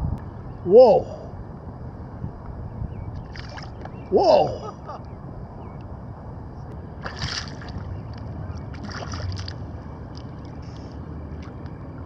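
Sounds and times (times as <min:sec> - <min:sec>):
wind: 0:00.0 - 0:12.0
lapping water: 0:08.6 - 0:10.3.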